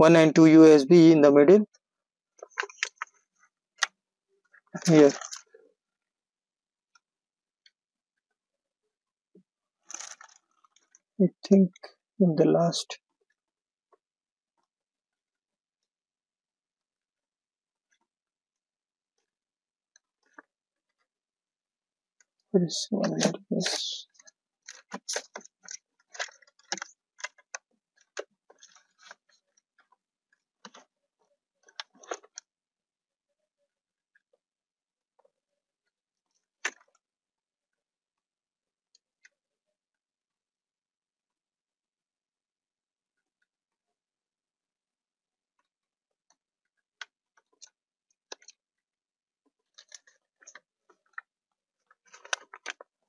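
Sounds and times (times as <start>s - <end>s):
cables and plastic connectors rustling: 2.4s - 5.6s, 9.7s - 11.9s, 22.2s - 32.5s, 46.2s - 48.7s, 49.5s - 53.0s.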